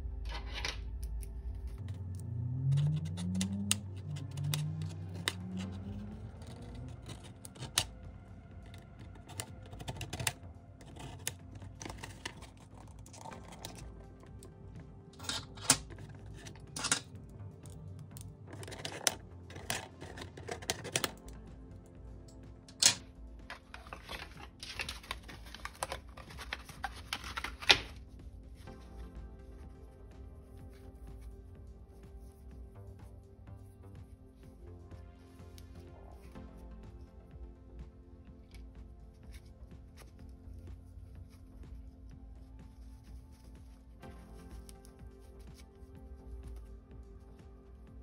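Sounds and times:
cardboard rustling and creaking: 8.7 - 14.5, 18.3 - 21.4, 23.4 - 28.1
cardboard rustling and crackling: 23.4 - 28.1.

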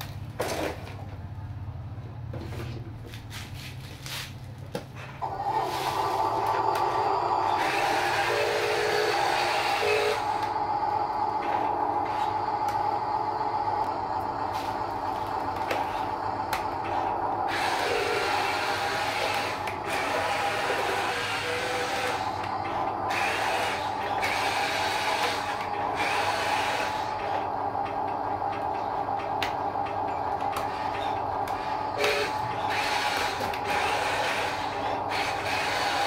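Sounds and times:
toy truck motor whirring: 5.2 - 36.0.

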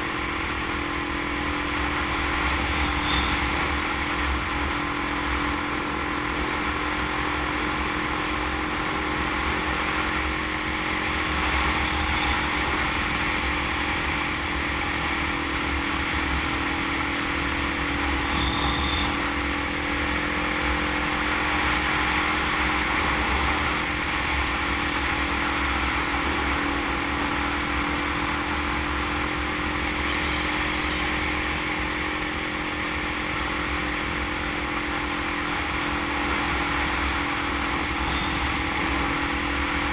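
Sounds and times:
motorcycle engine cruising: 0.0 - 39.9
wind and road noise: 0.0 - 39.9
short high tone: 2.8 - 3.8, 18.0 - 19.4.

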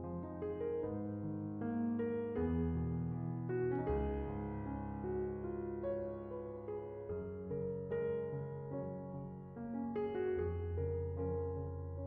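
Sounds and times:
background piano music: 0.0 - 12.0.

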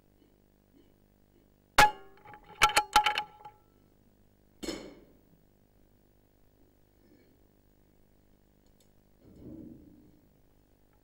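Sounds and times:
sharp metallic clank: 1.8 - 3.6.

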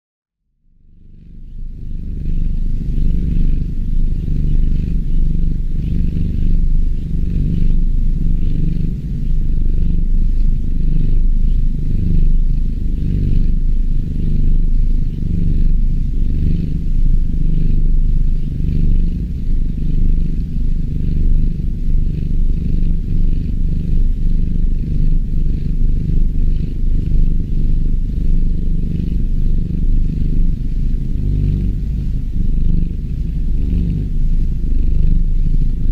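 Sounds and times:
kitten purring: 0.6 - 35.9.

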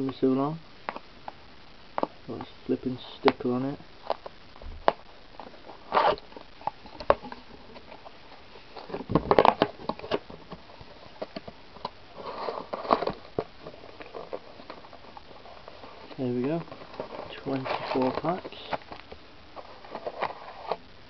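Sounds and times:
foil packs rustling: 2.3 - 20.8
cardboard box lid clicks and crinkles: 11.2 - 14.8.

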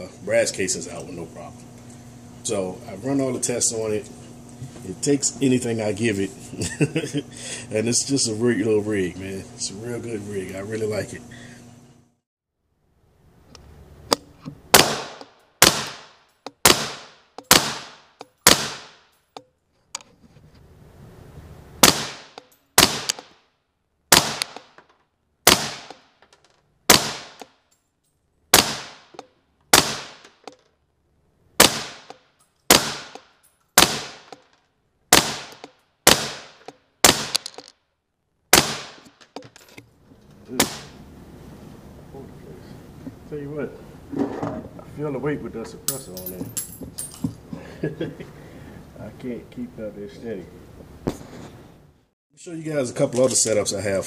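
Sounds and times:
suppressed rifle shots: 14.7 - 19.0, 21.8 - 23.4, 24.1 - 24.8, 25.4 - 26.0, 26.9 - 27.4, 28.5 - 30.5, 31.6 - 32.1, 32.7 - 34.4, 35.1 - 37.7, 38.5 - 39.1.

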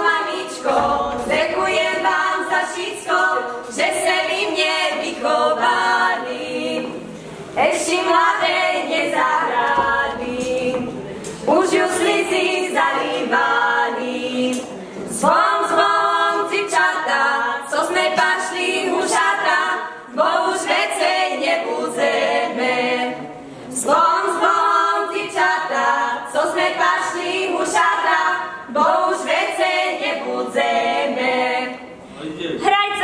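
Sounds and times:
women singing unaccompanied: 0.0 - 32.0.

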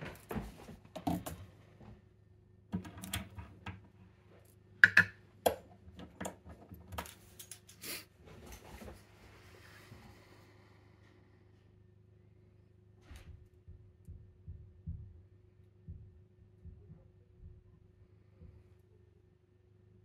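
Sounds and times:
lock cylinder clicks and knocks: 4.8 - 6.4.

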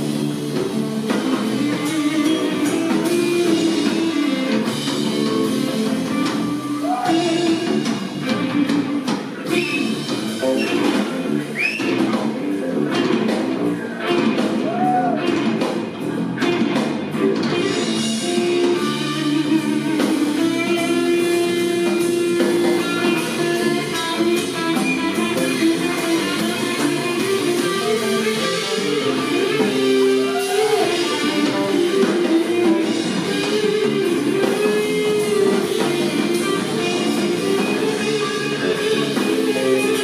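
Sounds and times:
drums: 0.0 - 40.0
electric bass: 0.0 - 40.0
electric guitar with bent notes: 0.0 - 40.0.

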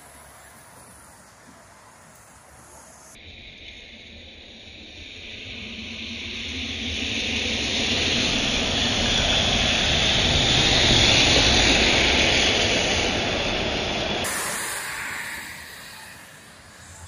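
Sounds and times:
bus passing on wet road: 0.0 - 3.2, 7.4 - 17.0.

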